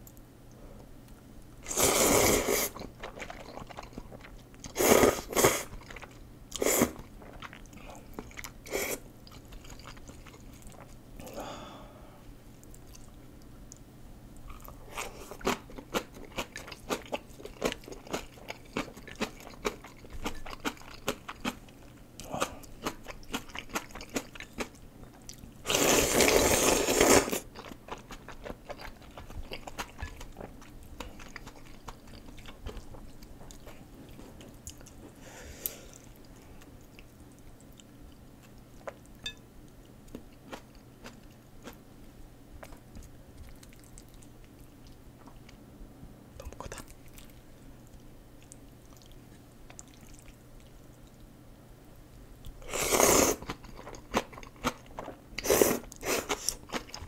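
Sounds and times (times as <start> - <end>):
wet chewing: 2.6 - 4.8, 9.2 - 11.0, 14.4 - 35.2, 42.6 - 45.6, 46.4 - 51.3
noodle slurping: 25.7 - 27.4, 52.7 - 53.6.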